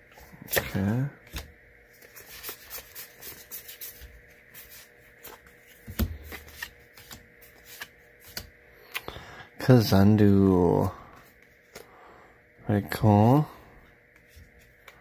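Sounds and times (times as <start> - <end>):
cards slapping and rustling: 0.1 - 9.1.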